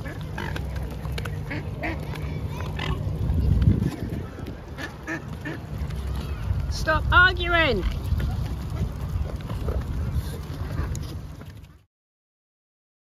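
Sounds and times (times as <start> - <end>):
swan calls: 0.0 - 3.2
low rumble: 0.0 - 11.8
swans scuffling: 0.0 - 11.9.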